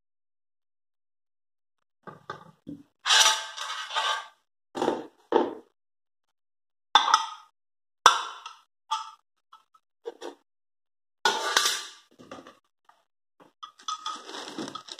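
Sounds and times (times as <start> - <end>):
metal pot parts clinking: 13.6 - 14.9.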